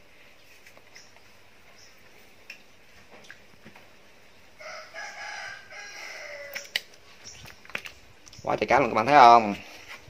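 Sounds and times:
rooster crowing: 0:04.6 - 0:06.8
high bird chirps: 0:06.4 - 0:08.6.

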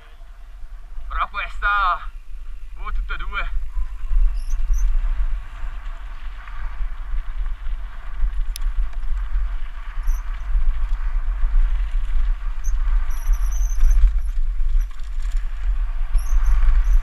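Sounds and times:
wind buffeting microphone: 0:00.0 - 0:17.0
bike squeaks: 0:04.2 - 0:05.1, 0:09.8 - 0:10.7, 0:12.5 - 0:17.0
tyres rolling on gravel: 0:13.8 - 0:17.0.

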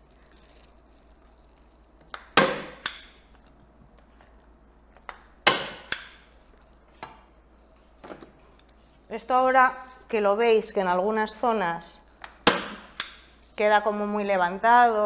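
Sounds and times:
staple gun clicks: 0:02.1 - 0:03.2, 0:05.1 - 0:06.3, 0:12.2 - 0:13.3
staple gun firing: 0:02.1 - 0:03.2, 0:05.4 - 0:06.3, 0:12.2 - 0:13.3.

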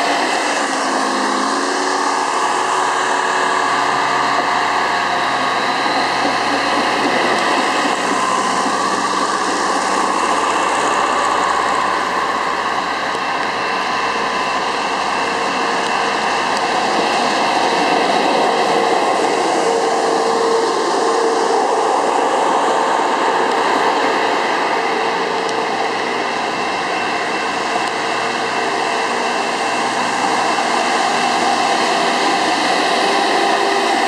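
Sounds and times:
diesel engines running: 0:00.0 - 0:34.0
wheels rolling on rails: 0:05.9 - 0:12.3.

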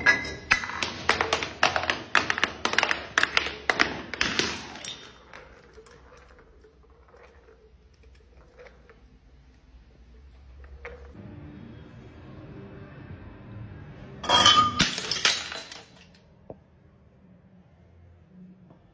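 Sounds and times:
glass bottle tumbling down stairs: 0:00.0 - 0:07.8, 0:14.2 - 0:16.0
glass breaking: 0:14.2 - 0:16.1.

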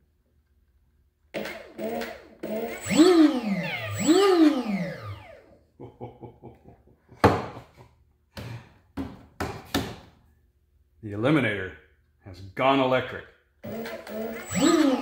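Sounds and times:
electric motor whining: 0:01.4 - 0:05.5, 0:13.6 - 0:15.0.

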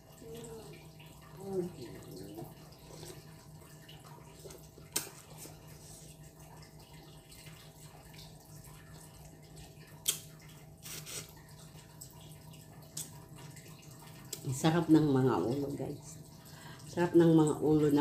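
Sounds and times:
sharp mouth smacks: 0:10.0 - 0:10.3
sucking and lip smacks: 0:10.0 - 0:11.3.

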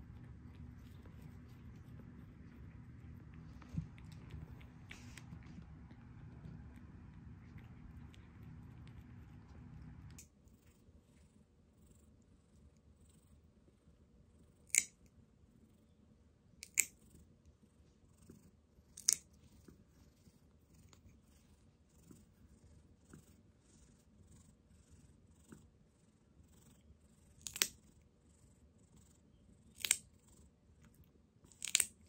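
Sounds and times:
nail clipper snipping claws: 0:14.7 - 0:15.0, 0:16.6 - 0:17.0, 0:19.0 - 0:19.2, 0:27.4 - 0:27.8, 0:29.8 - 0:30.0, 0:31.5 - 0:32.0.

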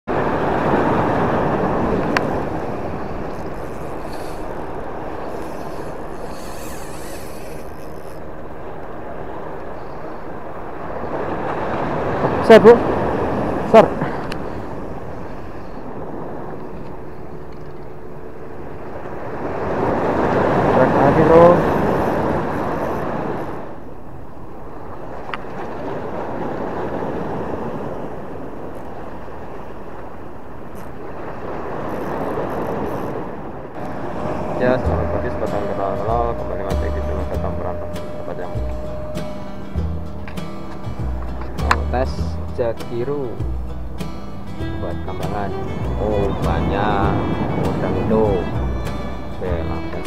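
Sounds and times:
wind: 0:00.0 - 0:50.0
sea rumbling: 0:00.1 - 0:50.0.

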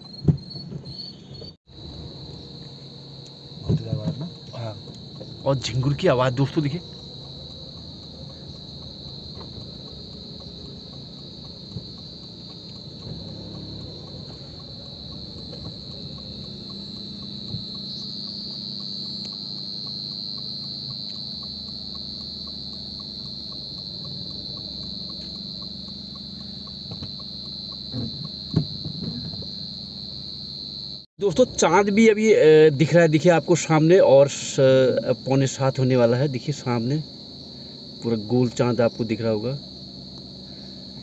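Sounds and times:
crickets chirring: 0:00.0 - 0:41.0
low steady hum: 0:01.7 - 0:41.0.

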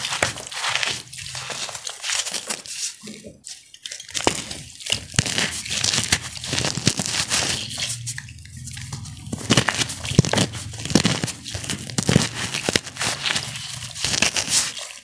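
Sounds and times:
cornstarch crunching in hands: 0:00.0 - 0:03.0, 0:04.1 - 0:15.0.

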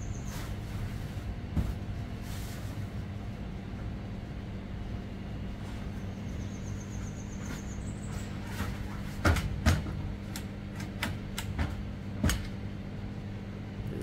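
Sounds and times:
steady low hum: 0:00.0 - 0:14.0
knocks on metal roof: 0:09.1 - 0:10.1.

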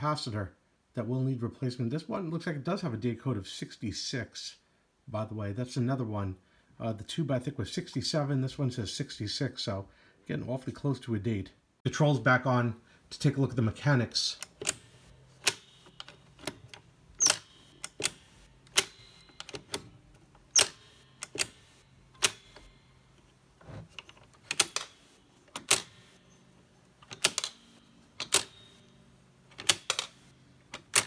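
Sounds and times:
tape recorder levers clicking: 0:14.4 - 0:23.3, 0:24.0 - 0:26.2, 0:27.0 - 0:28.8, 0:29.5 - 0:31.0.

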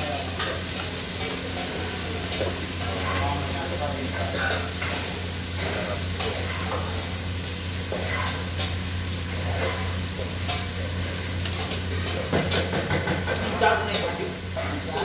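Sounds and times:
food sizzling in a pot: 0:00.0 - 0:15.0
metal spoon scraping a pot: 0:05.6 - 0:07.0, 0:07.9 - 0:08.7, 0:09.3 - 0:10.6.

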